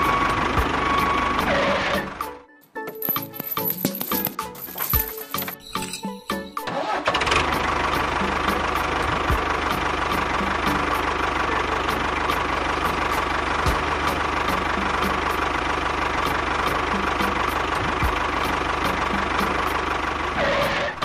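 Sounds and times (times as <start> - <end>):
diesel tractor engine idling: 0.0 - 2.2, 6.7 - 21.0.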